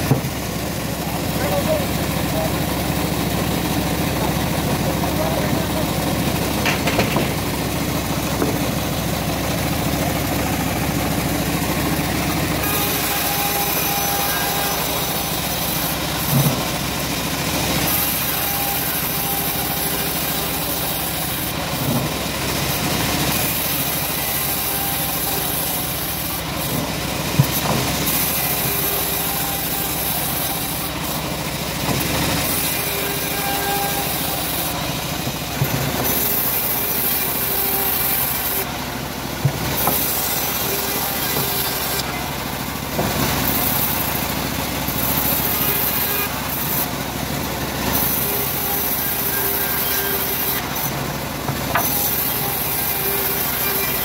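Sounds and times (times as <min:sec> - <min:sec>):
timber knocks: 0:00.0 - 0:00.4, 0:08.3 - 0:08.8, 0:26.8 - 0:28.0
sawmill engine running: 0:00.0 - 0:54.0
band blade cutting wood: 0:10.0 - 0:16.8, 0:17.6 - 0:31.2, 0:31.8 - 0:38.7, 0:39.4 - 0:42.2, 0:44.9 - 0:46.9, 0:47.9 - 0:54.0.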